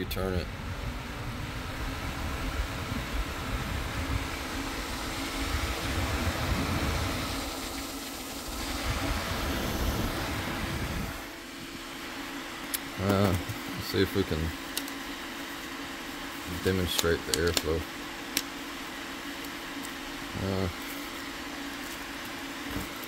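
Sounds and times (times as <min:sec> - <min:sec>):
faint motor hum: 0:00.0 - 0:23.0
fan blowing air: 0:00.0 - 0:23.0
wind buffeting microphone: 0:00.3 - 0:07.8, 0:08.4 - 0:11.3.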